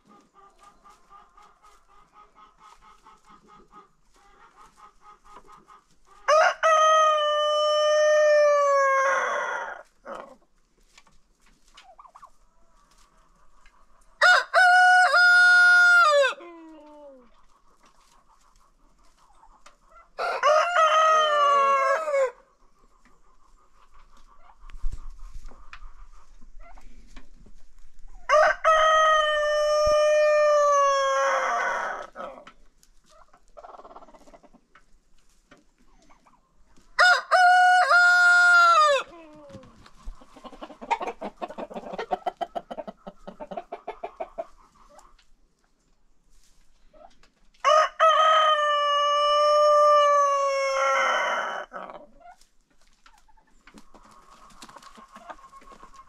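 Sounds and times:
faint hen clucking: 0.0s - 10.7s, 11.4s - 34.9s, 35.5s - 46.0s, 46.8s - 56.0s
roosters crowing: 6.3s - 10.2s, 14.2s - 16.4s, 20.2s - 22.4s, 28.2s - 32.4s, 37.0s - 39.1s, 47.6s - 51.8s.

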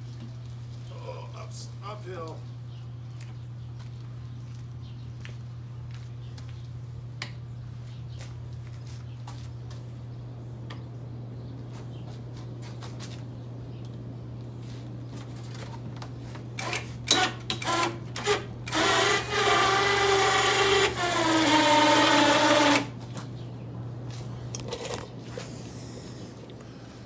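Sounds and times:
low steady hum: 0.0s - 27.0s
small motor revving: 17.6s - 22.9s.

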